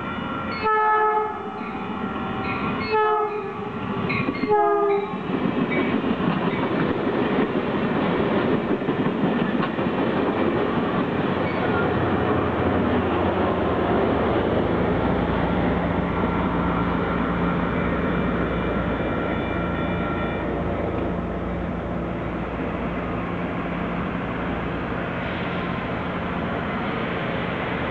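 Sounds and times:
train rumble: 0.0 - 27.9
train wheels clattering on rails: 4.0 - 14.8.

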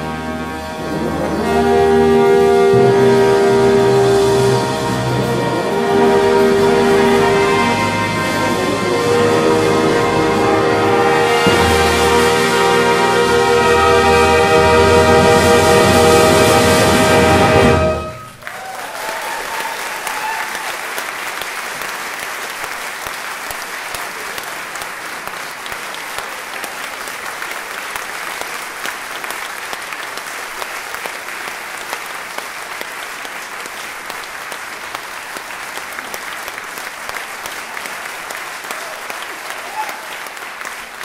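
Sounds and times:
brass band chord: 0.0 - 18.4
audience applauding: 0.0 - 41.0.

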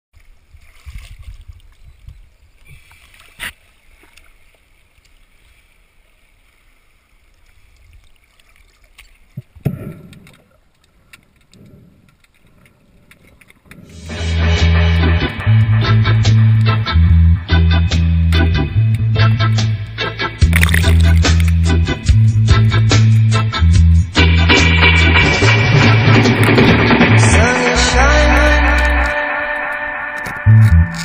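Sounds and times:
water splash: 0.2 - 1.8, 2.6 - 10.9, 20.4 - 23.4, 24.2 - 31.0
water sloshing and lapping: 0.2 - 14.1, 20.4 - 21.8
guitar music: 14.0 - 31.0.

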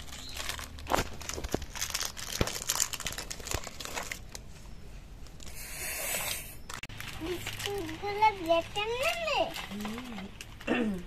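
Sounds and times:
plastic wrappers crinkling and tearing: 0.0 - 4.5, 6.6 - 11.0.

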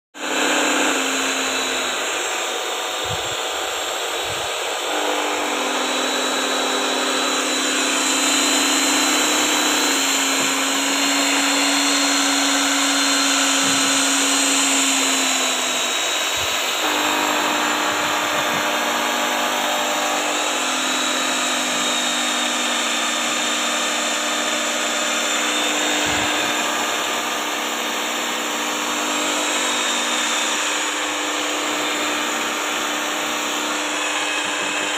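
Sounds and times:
electric drill mixer running: 0.1 - 34.9.

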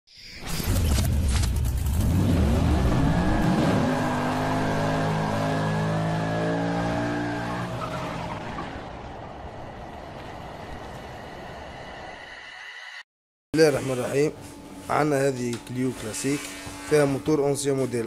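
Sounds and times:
car engine revving: 0.8 - 10.0.

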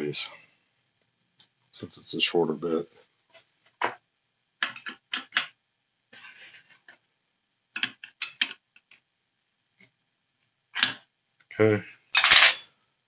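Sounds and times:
wrench scraping metal: 12.1 - 12.6.

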